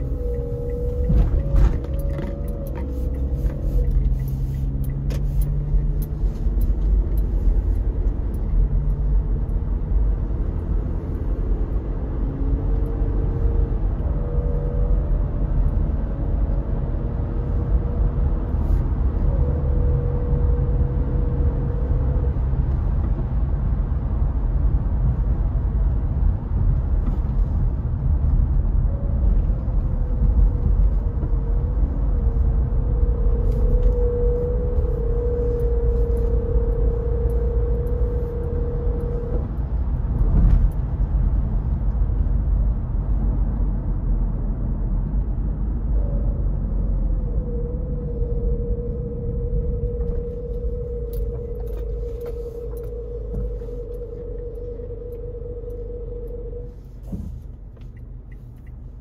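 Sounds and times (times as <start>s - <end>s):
faint wavering high tone: 0.0s - 7.8s, 31.6s - 40.6s, 45.9s - 57.4s
car road and engine rumble: 0.0s - 59.0s.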